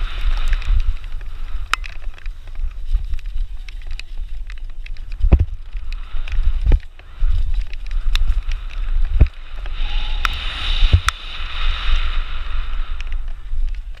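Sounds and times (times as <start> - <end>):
wind buffeting microphone: 0.0 - 14.0
bike knocks and rattles: 1.7 - 9.3
hiss: 5.7 - 14.0.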